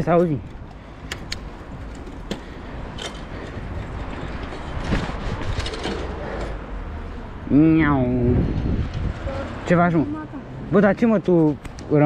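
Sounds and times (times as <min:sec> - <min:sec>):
bike rattling clicks: 0:00.4 - 0:06.6
bike rolling over stone paving: 0:01.9 - 0:06.6.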